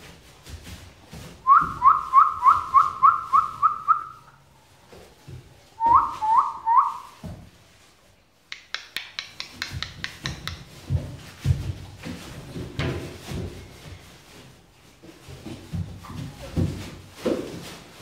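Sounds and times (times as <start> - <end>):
puppies scuffling on paper bedding: 0.0 - 8.5, 9.6 - 18.0
person whistling: 1.5 - 4.2, 5.8 - 7.1
sharp taps: 8.5 - 10.8
low thumps of paws: 9.4 - 18.0.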